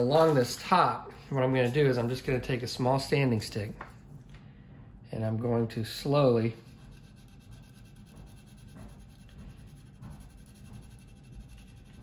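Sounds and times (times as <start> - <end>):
sanding stick scratching: 6.2 - 12.0.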